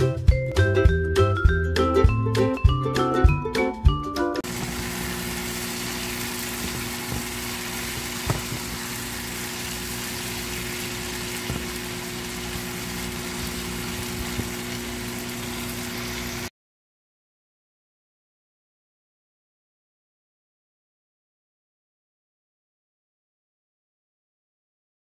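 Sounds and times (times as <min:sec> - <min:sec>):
food sizzling in a frying pan: 0:04.4 - 0:16.5
machine hum: 0:04.4 - 0:16.5.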